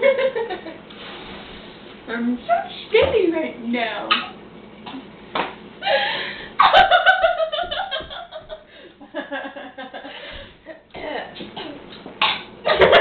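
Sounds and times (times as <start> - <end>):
women laughing: 0.0 - 0.8, 5.8 - 10.8, 12.7 - 13.0
women giggling: 5.8 - 10.8.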